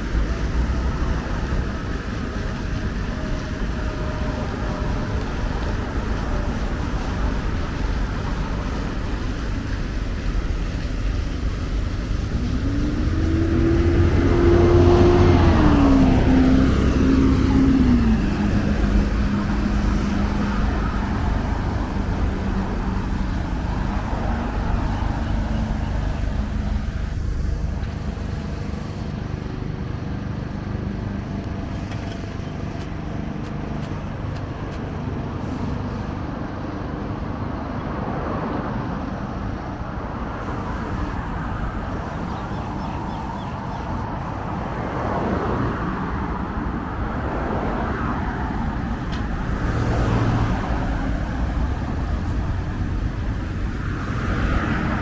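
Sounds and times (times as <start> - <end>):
traffic hum: 0.0 - 55.0
car driving past: 12.1 - 28.6, 40.4 - 55.0.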